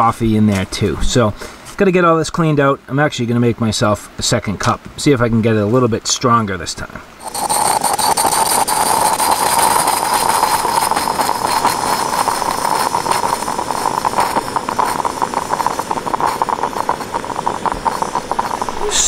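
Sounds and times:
sputtering crackles: 0:07.2 - 0:19.0
stovetop coffee maker hissing: 0:07.2 - 0:19.0.

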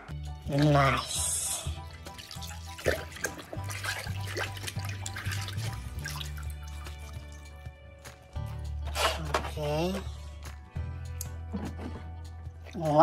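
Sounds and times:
background music: 0:00.0 - 0:13.0
water splashing and sloshing: 0:00.4 - 0:10.6.

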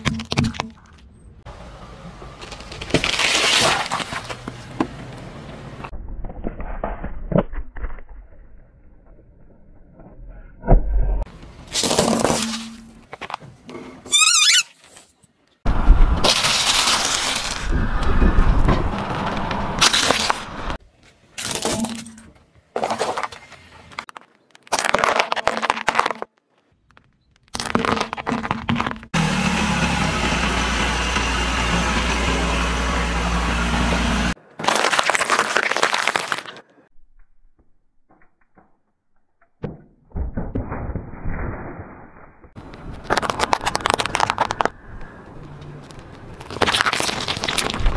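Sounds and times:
tyre crunching brittle items: 0:02.3 - 0:04.7, 0:16.2 - 0:17.9, 0:21.1 - 0:29.2, 0:34.4 - 0:36.8, 0:42.6 - 0:47.9.

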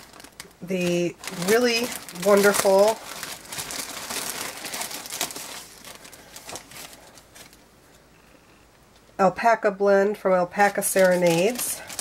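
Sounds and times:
plastic bag crinkling: 0:00.0 - 0:07.6, 0:10.5 - 0:12.0.

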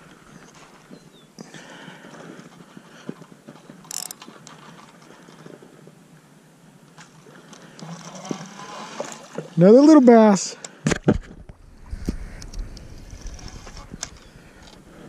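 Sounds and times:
fishing reel whirring and clicking: 0:03.8 - 0:04.7.

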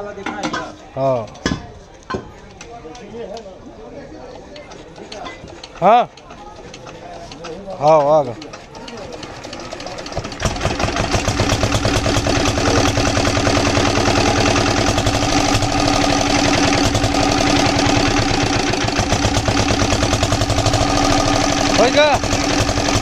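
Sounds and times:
diesel engine chugging: 0:09.0 - 0:23.0.

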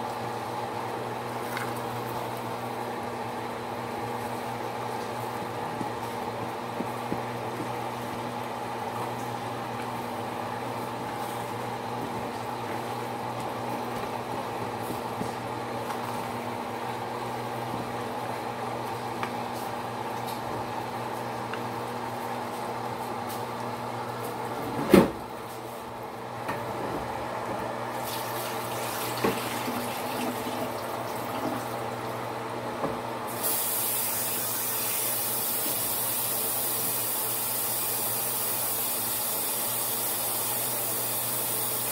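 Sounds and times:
rice simmering and bubbling: 0:00.0 - 0:24.5
loud steady hiss: 0:33.3 - 0:41.9.

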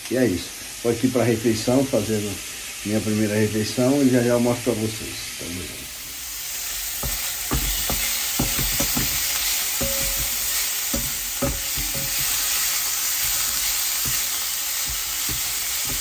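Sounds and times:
beef sizzling in a frying pan: 0:00.0 - 0:16.0
spatula knocking against pan: 0:07.0 - 0:16.0.

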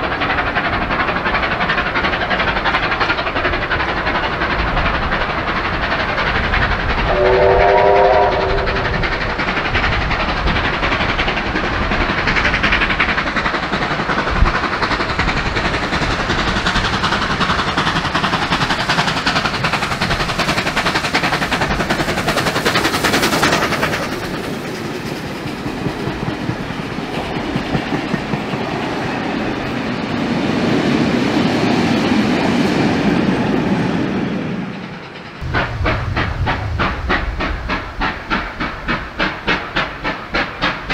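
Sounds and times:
wagons clickety-clack over rail joints: 0:00.0 - 0:07.2, 0:07.8 - 0:40.9
steam engine heavy exhaust: 0:00.0 - 0:31.3, 0:33.2 - 0:40.9
steam whistle chord: 0:07.1 - 0:09.1.

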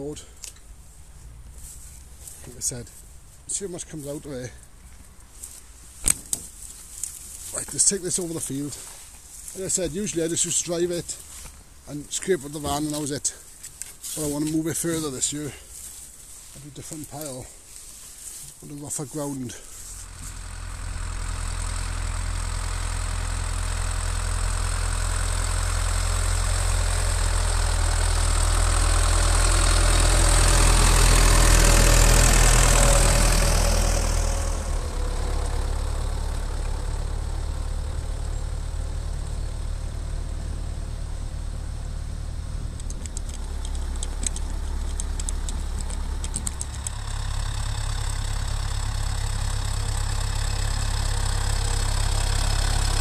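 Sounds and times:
tractor diesel engine running: 0:00.0 - 0:53.0.

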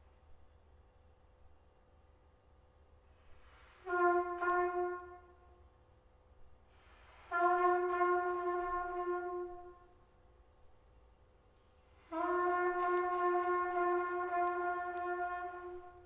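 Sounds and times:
soft hiss: 0:00.0 - 0:16.0
trumpet long held notes: 0:03.8 - 0:05.6, 0:07.2 - 0:10.0, 0:12.0 - 0:16.0.

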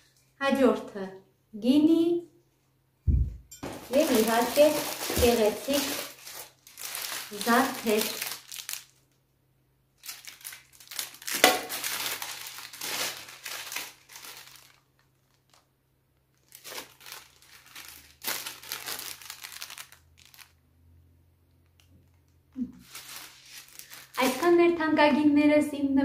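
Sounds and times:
plastic bags crinkling: 0:03.6 - 0:09.2, 0:10.0 - 0:20.6, 0:21.7 - 0:24.8.

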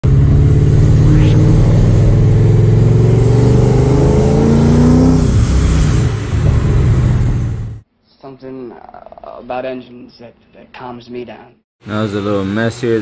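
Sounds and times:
engine running loud: 0:00.0 - 0:07.8.

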